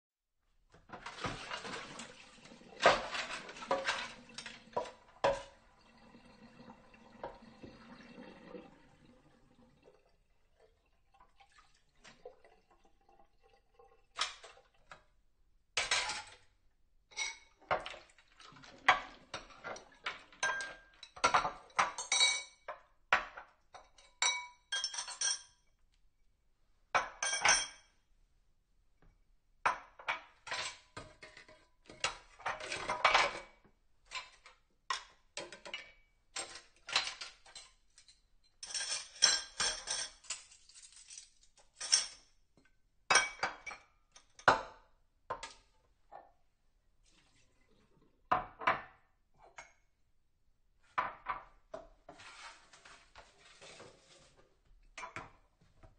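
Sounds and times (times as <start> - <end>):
dishes clinking and clattering: 0.9 - 5.6, 15.8 - 16.4, 17.1 - 25.6, 26.9 - 28.0, 29.7 - 42.3, 43.1 - 45.7, 54.9 - 55.5.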